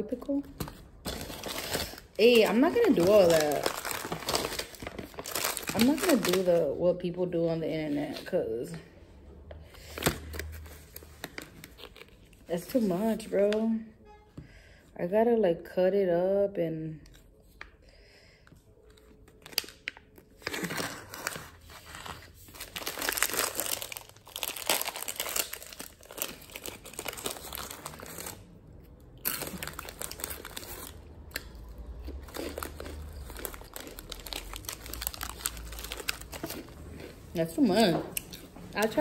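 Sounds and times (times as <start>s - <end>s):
plastic bags crinkling and tearing: 0.2s - 6.8s, 9.8s - 13.2s, 18.9s - 39.0s.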